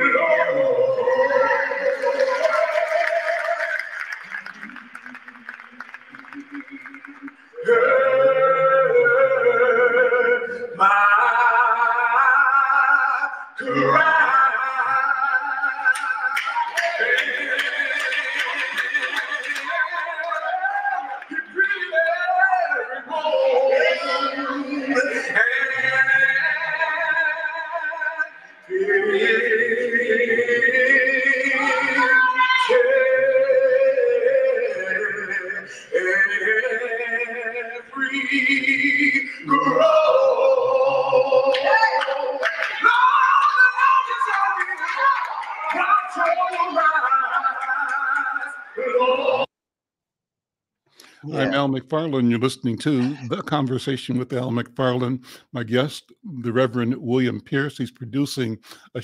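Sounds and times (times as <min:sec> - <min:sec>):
man singing gospel solo: 0:00.0 - 0:03.9, 0:06.9 - 0:49.5.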